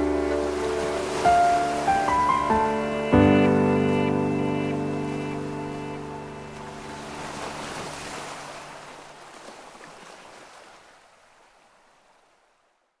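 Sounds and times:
ocean surf washing: 0.0s - 12.5s.

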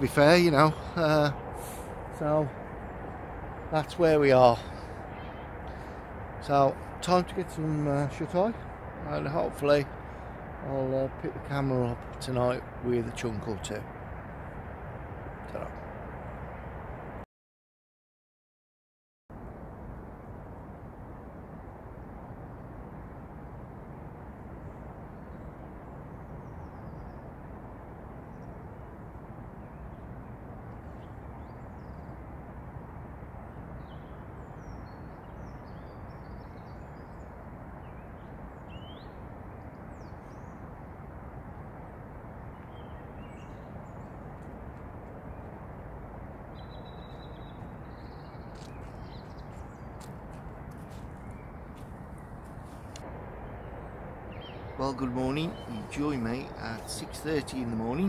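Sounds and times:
faint birds chirping: 0.0s - 17.1s, 24.3s - 32.4s, 33.2s - 58.0s
outdoor rumble and hiss: 0.0s - 17.2s, 19.4s - 58.0s
bird trill: 33.8s - 40.6s, 46.5s - 50.0s, 54.3s - 58.0s
footsteps on leafy path: 47.1s - 53.1s.

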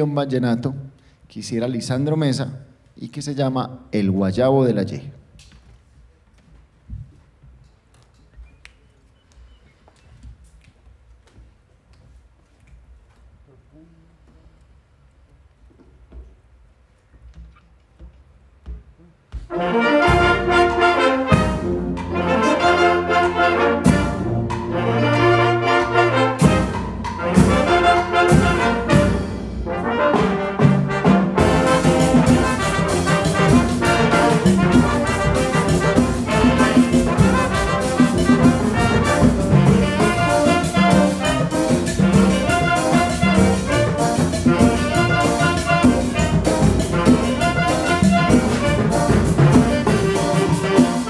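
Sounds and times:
wind band playing cumbia: 19.4s - 51.0s.

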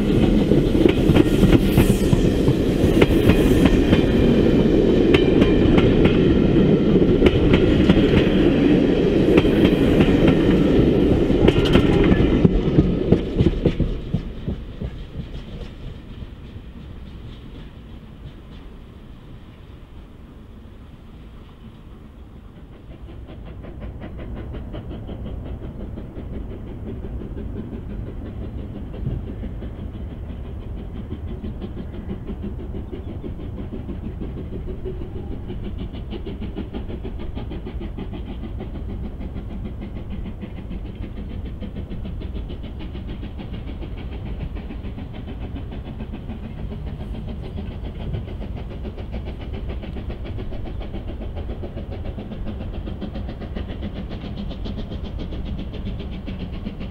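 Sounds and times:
steam train rumbling: 0.0s - 56.9s.

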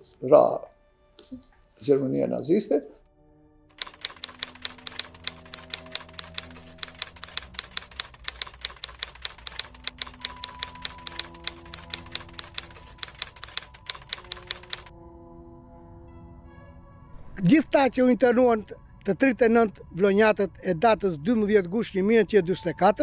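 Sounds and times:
soft background music: 0.0s - 23.0s
typewriter keystroke clacks: 3.8s - 14.9s.

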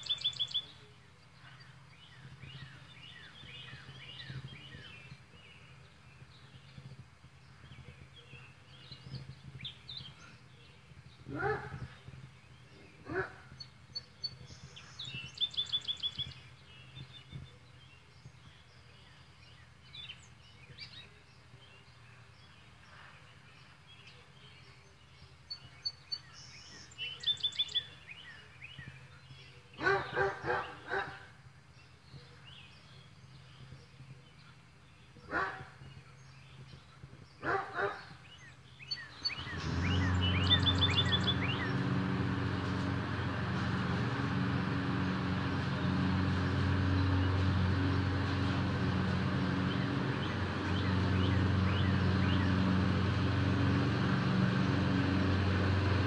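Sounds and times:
birds singing: 0.0s - 56.0s
lawn mower engine running: 0.0s - 56.0s
dog barking: 11.3s - 11.8s, 13.1s - 13.5s, 29.8s - 31.3s, 35.3s - 35.7s, 37.4s - 38.1s.

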